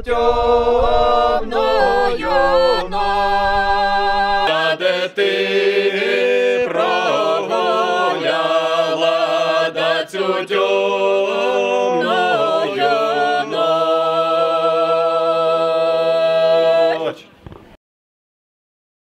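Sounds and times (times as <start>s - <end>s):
low held note: 0.0s - 4.5s
group singing a cappella: 0.0s - 17.3s.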